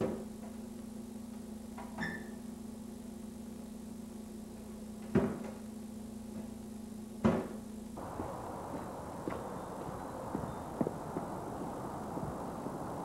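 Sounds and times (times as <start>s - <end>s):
steady low hum: 0.0s - 13.0s
outdoor hiss: 7.8s - 13.0s
light footsteps on a path: 8.0s - 13.0s.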